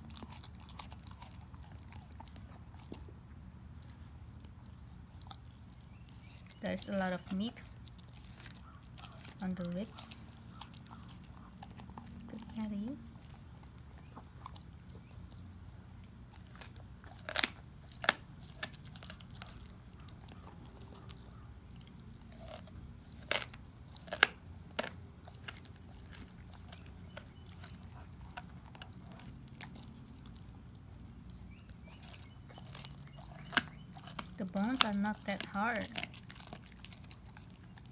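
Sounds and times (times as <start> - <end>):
dog chewing wetly: 0.0 - 37.9
bone crunches: 16.1 - 30.2.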